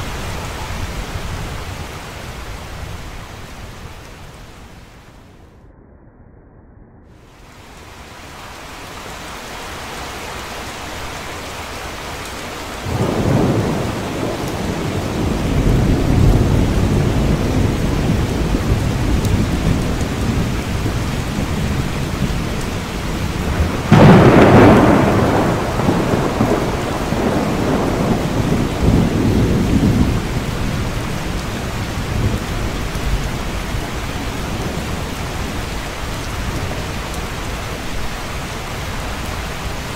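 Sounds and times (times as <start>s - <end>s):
heavy rain: 0.0s - 5.6s, 7.1s - 39.9s
thunder rumbling: 0.0s - 39.9s.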